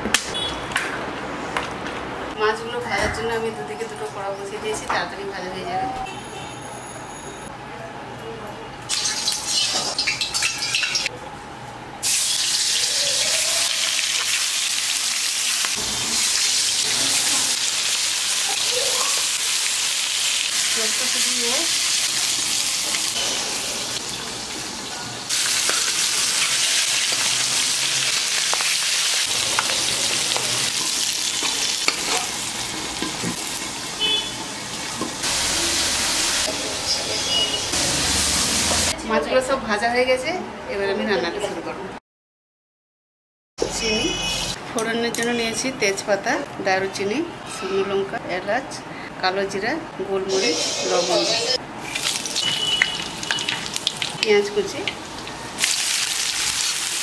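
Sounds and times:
fish sizzling in oil: 0:08.9 - 0:11.1, 0:12.0 - 0:38.9, 0:51.8 - 0:57.0.

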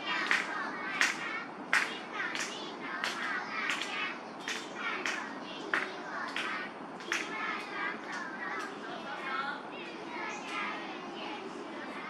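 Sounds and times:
young children's voices: 0:00.0 - 0:12.0
rhythmic hand clapping: 0:00.1 - 0:08.8.

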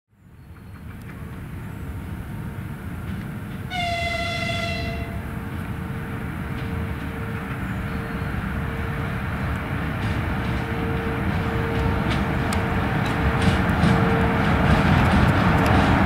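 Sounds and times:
freight train rumble: 0:00.2 - 0:16.0
high-pitched locomotive horn: 0:03.7 - 0:05.3.

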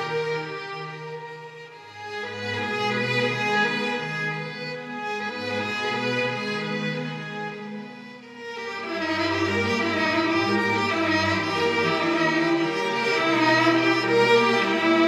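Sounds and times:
string section playing held notes: 0:08.6 - 0:15.0.

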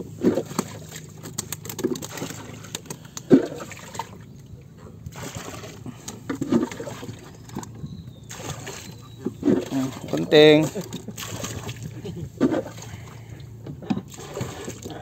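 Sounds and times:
water lapping against boat: 0:00.0 - 0:15.0
small clicks and knocks: 0:01.2 - 0:03.3.

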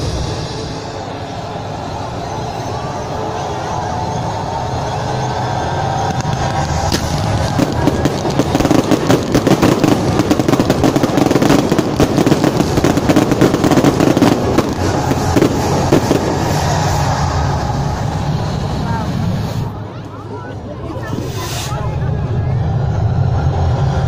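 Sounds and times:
fireworks popping and crackling: 0:06.0 - 0:19.7.

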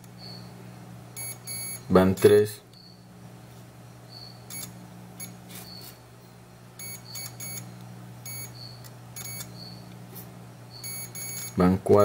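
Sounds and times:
steady low hum: 0:00.0 - 0:12.0
multimeter buzzer beeps: 0:00.1 - 0:01.9, 0:02.7 - 0:03.0, 0:04.1 - 0:06.0, 0:06.8 - 0:09.9, 0:10.6 - 0:11.7.

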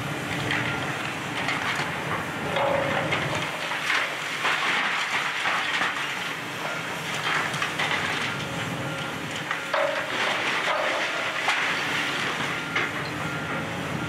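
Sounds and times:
brick and debris crunching: 0:02.6 - 0:08.4, 0:09.4 - 0:13.0.

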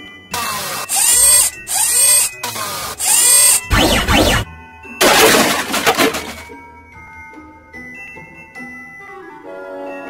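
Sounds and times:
cartoon crash sound effects: 0:03.0 - 0:06.5
shattering clatter: 0:05.0 - 0:06.5.

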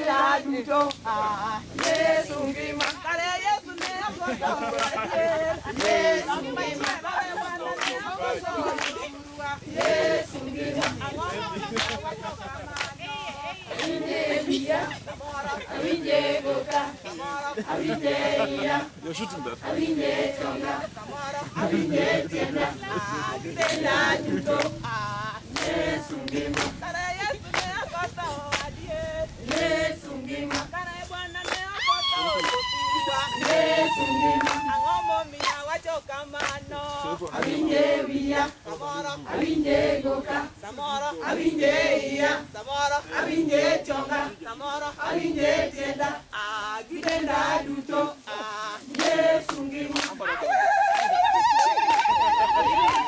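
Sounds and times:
group singing unaccompanied: 0:00.0 - 0:53.0
sharp hand claps: 0:00.8 - 0:01.1, 0:01.7 - 0:03.1, 0:03.7 - 0:05.0, 0:05.7 - 0:07.0, 0:07.8 - 0:09.1, 0:09.7 - 0:13.1, 0:23.6 - 0:24.8, 0:25.5 - 0:27.8, 0:28.4 - 0:28.8, 0:29.4 - 0:29.7, 0:30.4 - 0:30.8, 0:31.4 - 0:32.7, 0:33.3 - 0:37.6, 0:48.9 - 0:50.2, 0:50.9 - 0:53.0.

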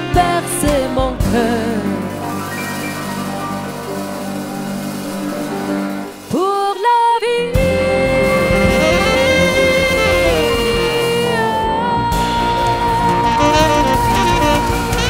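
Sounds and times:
live band holding a chord: 0:00.0 - 0:06.7, 0:07.4 - 0:15.0
woman singing wordless high note: 0:06.3 - 0:15.0.

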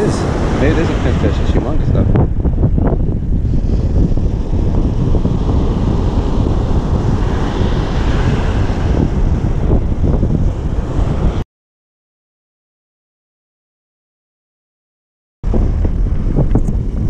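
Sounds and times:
wave washing up beach: 0:00.0 - 0:02.2, 0:03.4 - 0:11.4
breaking surf: 0:00.0 - 0:11.4
wind buffeting microphone: 0:00.0 - 0:11.4, 0:15.4 - 0:17.0.

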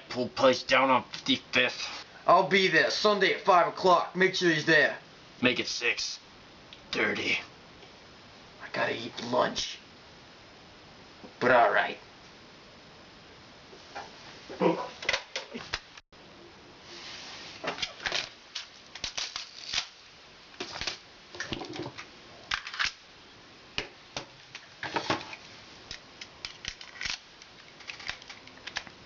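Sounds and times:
plastic pistol clicks and rattles: 0:25.9 - 0:28.9.

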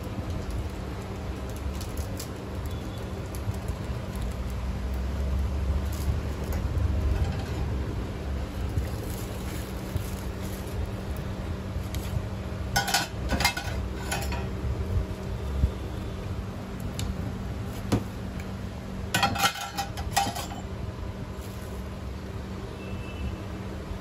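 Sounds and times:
metal utensils clinking on cookware: 0:12.8 - 0:14.5, 0:19.1 - 0:20.7.

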